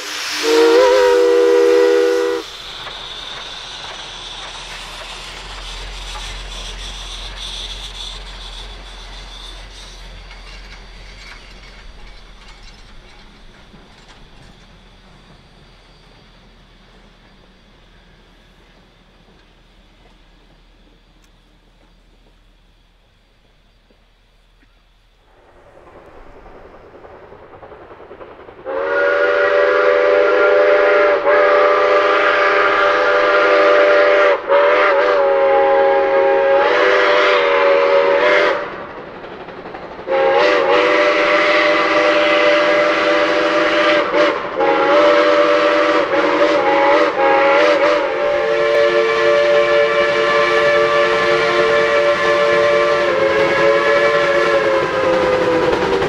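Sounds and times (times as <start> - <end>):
steam locomotive chime whistle: 0.0 - 11.2, 28.6 - 38.7, 40.1 - 56.0.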